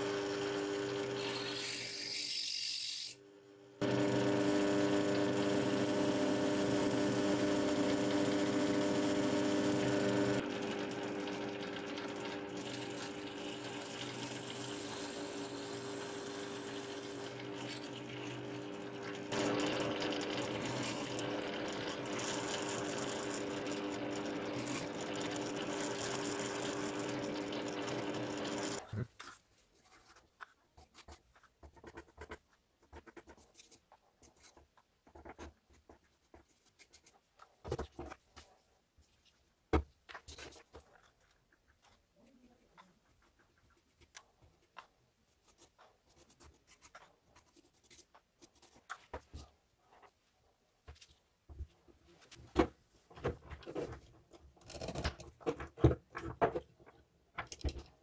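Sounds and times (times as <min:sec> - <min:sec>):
drill press motor humming: 0:00.0 - 0:02.3, 0:03.6 - 0:28.8.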